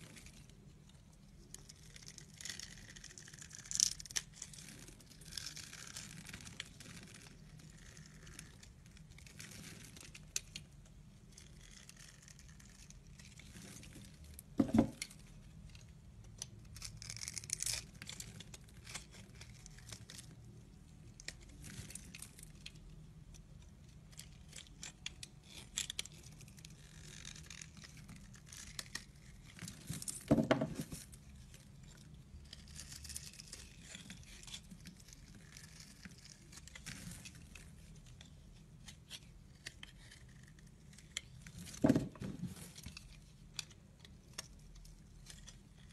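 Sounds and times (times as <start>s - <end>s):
knife scraping soap: 11.3s - 13.9s, 31.8s - 38.1s.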